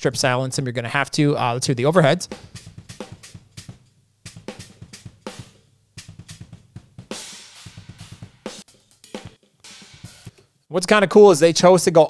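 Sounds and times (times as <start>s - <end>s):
kick and snare drum hits: 2.3s - 10.3s
cymbal washes: 2.3s - 10.4s.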